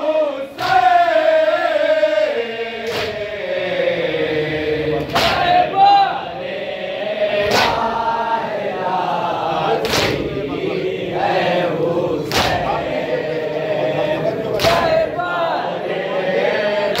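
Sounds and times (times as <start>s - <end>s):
crowd of men chanting: 0.0s - 17.0s.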